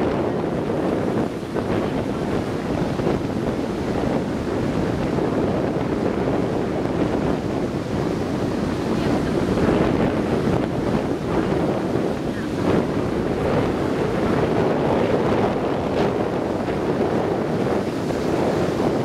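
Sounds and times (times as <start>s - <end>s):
heavy surf breaking: 0.0s - 19.0s
wind buffeting microphone: 0.0s - 19.0s.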